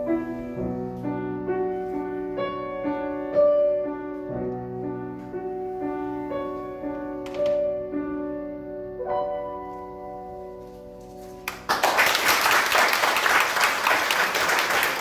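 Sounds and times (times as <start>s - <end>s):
piano chord ringing: 0.0s - 11.7s
audience applause: 11.5s - 15.0s.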